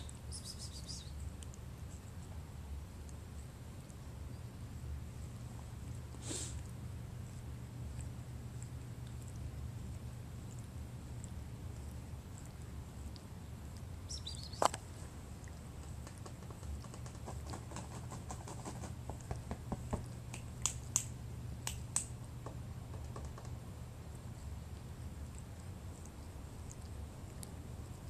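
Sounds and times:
cat licking paw clicks: 1.3 - 2.4, 14.5 - 22.2, 22.9 - 23.6.

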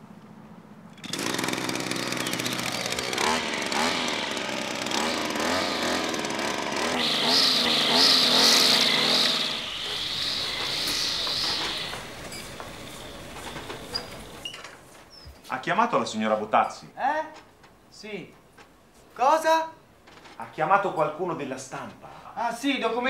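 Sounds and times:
string trimmer engine revving: 1.0 - 14.4.

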